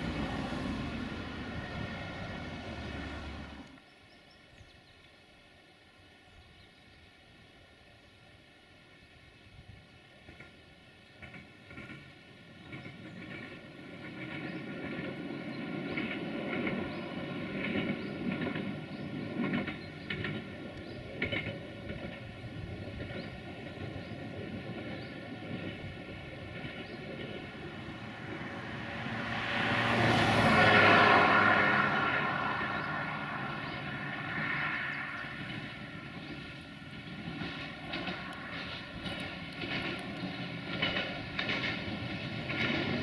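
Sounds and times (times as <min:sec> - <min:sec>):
diesel railcar engine drone: 0:00.0 - 0:04.0, 0:07.5 - 0:43.0
faint clicks: 0:37.4 - 0:41.8.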